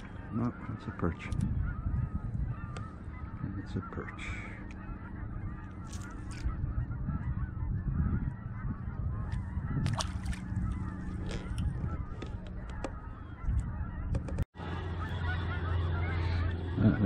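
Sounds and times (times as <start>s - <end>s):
boat motor humming: 0.0s - 7.5s, 8.4s - 17.0s
fish splashing into water: 9.8s - 10.5s.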